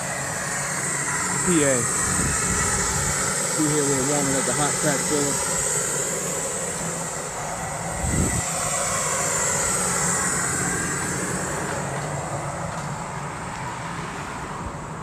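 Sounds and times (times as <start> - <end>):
engine running with hissing rush: 0.0 - 15.0.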